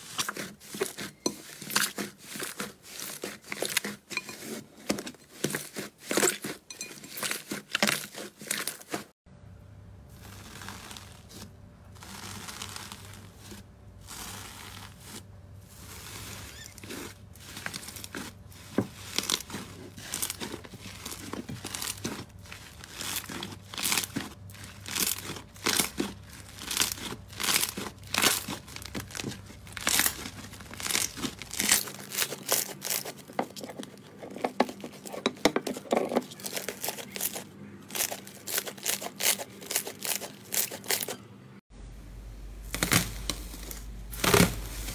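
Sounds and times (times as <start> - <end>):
foil crinkling: 10.1 - 41.2, 42.7 - 44.9.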